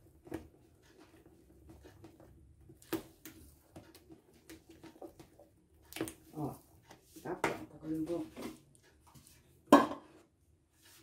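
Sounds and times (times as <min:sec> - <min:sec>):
spatula stirring batter in bowl: 0:00.0 - 0:11.0.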